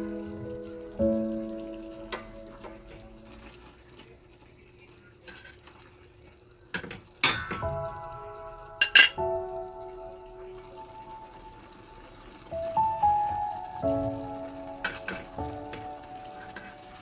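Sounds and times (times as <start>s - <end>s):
metal tongs clinking on a pot: 6.8s - 7.6s, 8.8s - 9.2s.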